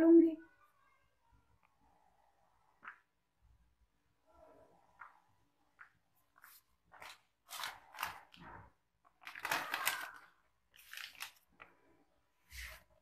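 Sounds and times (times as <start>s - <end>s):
chocolate crunching and rustling: 6.3s - 12.0s.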